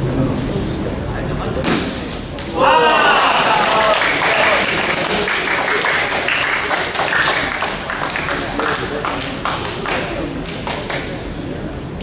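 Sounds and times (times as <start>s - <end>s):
murmur of voices: 0.0s - 12.0s
scattered hand clapping: 3.2s - 11.3s.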